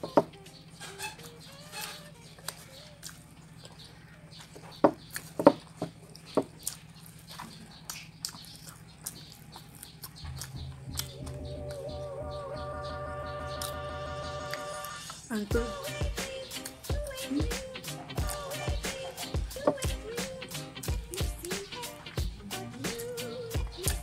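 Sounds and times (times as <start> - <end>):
wet chewing and lip smacks: 2.4 - 11.2
background music: 10.3 - 24.0.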